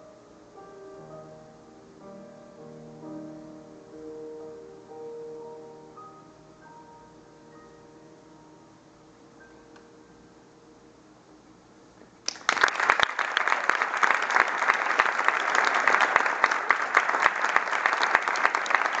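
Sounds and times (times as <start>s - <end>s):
grand piano chord: 0.0s - 11.8s
audience applause: 12.2s - 19.0s.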